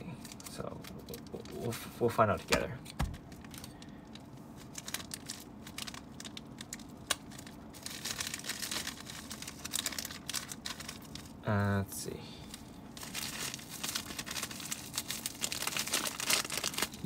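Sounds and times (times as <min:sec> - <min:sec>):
plastic bag crinkling: 0:03.2 - 0:11.4, 0:12.5 - 0:17.0.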